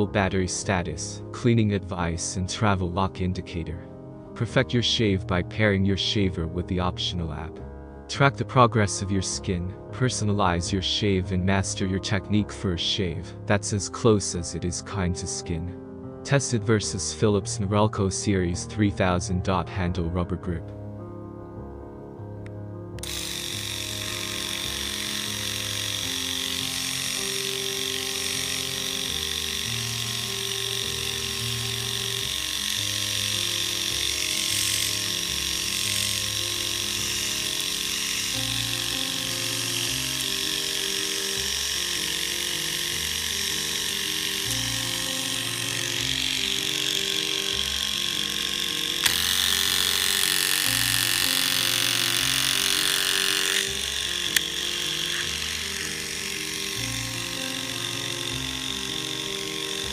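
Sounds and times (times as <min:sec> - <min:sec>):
background music: 0:00.0 - 0:59.9
electric shaver buzzing: 0:22.4 - 0:59.9
shaver trimmer click: 0:22.4 - 0:59.9.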